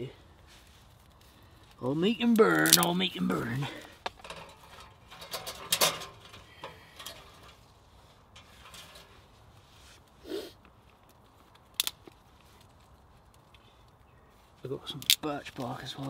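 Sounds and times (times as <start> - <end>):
twigs rustling against metal grate: 0.0 - 16.0.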